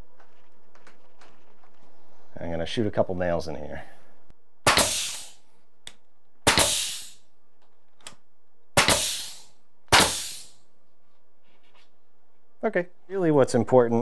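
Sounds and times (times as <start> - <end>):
nail gun firing: 4.6 - 5.4, 6.4 - 7.2, 8.8 - 10.5.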